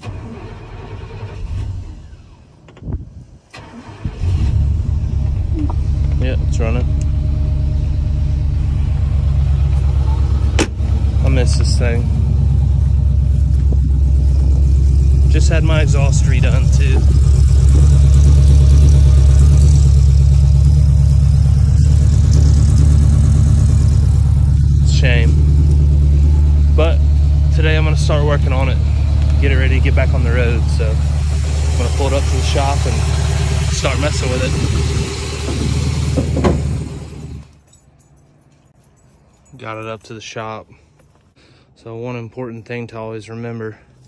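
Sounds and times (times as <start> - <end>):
starter cranking engine: 0.0 - 2.4, 10.3 - 26.8, 27.9 - 37.6
engine running loudly: 5.5 - 37.5.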